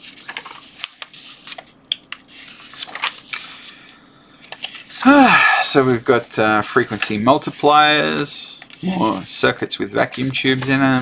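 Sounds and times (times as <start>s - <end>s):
book pages rustling: 0.0s - 3.8s, 4.4s - 5.0s, 5.9s - 8.8s.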